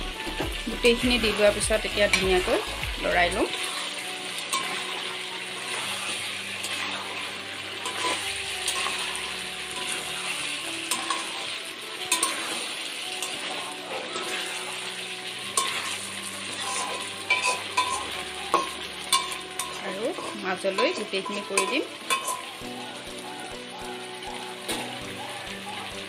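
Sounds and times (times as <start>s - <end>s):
food sizzling in a pan: 0.0s - 26.0s
spatula stirring and scraping: 1.2s - 22.8s.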